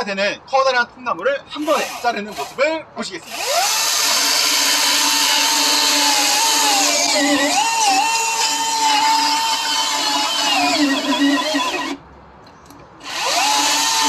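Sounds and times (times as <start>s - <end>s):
chainsaw cutting log: 1.6s - 2.6s, 3.3s - 12.0s, 13.0s - 14.0s.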